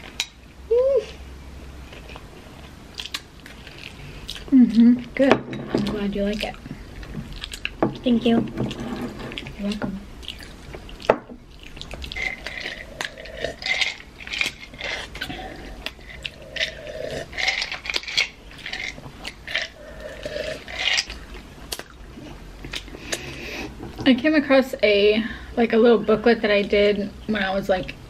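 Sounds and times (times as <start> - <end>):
people chewing food: 1.6 - 24.1.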